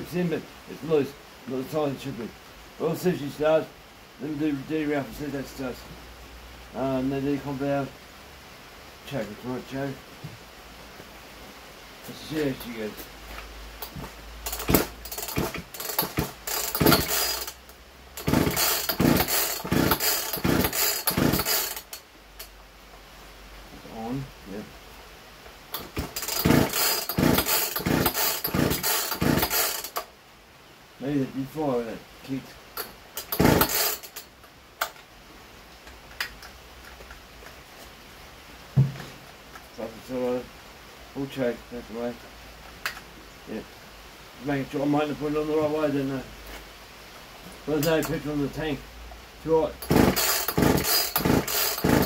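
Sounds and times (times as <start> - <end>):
starter rope yanked: 13.8 - 17.6, 18.2 - 22.0, 25.7 - 30.0, 33.2 - 34.2, 49.8 - 52.0
chainsaw engine turning over: 13.8 - 22.0, 25.7 - 30.1, 33.2 - 34.3, 49.8 - 52.0.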